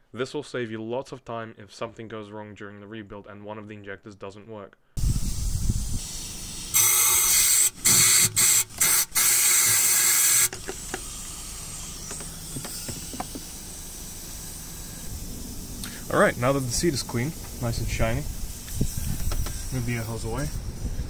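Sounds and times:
faint air hiss: 4.8s - 21.0s
compressed air blow gun bursts: 5.0s - 21.0s.

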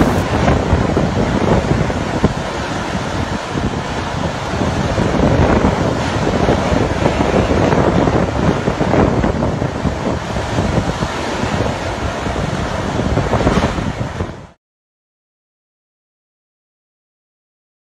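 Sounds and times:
driving rain: 0.0s - 10.8s
wind buffeting microphone: 0.0s - 14.6s.

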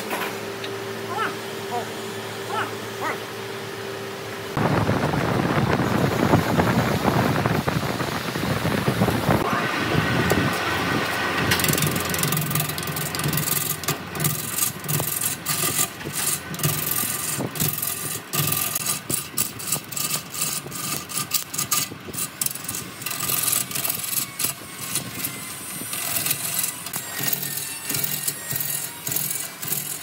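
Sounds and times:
lathe motor hum: 0.6s - 30.0s
tool rasping on spinning wood: 10.1s - 30.0s.

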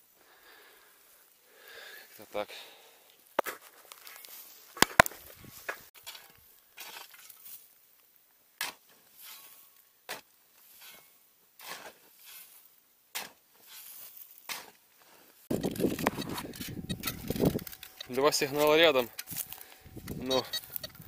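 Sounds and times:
shovel striking soil: 3.4s - 3.6s, 4.8s - 5.2s, 8.6s - 14.8s
scrape and fall of earth: 3.4s - 7.8s, 8.6s - 21.0s.

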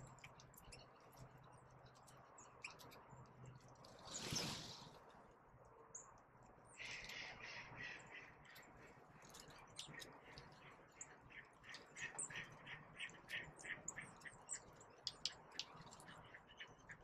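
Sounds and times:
small songbirds chirping: 5.8s - 17.0s.

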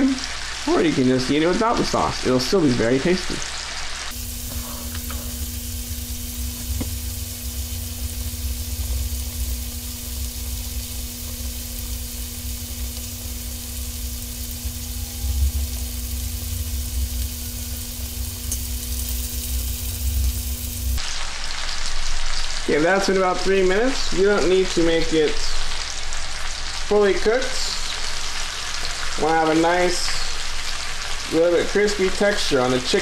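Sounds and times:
chicken sizzling in oil: 0.0s - 33.0s
low hum: 4.1s - 21.0s.

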